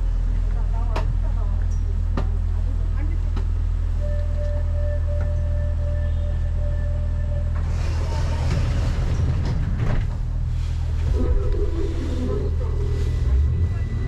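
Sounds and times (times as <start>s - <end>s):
train interior low hum: 0.0s - 14.0s
train rushing running noise: 7.5s - 14.0s.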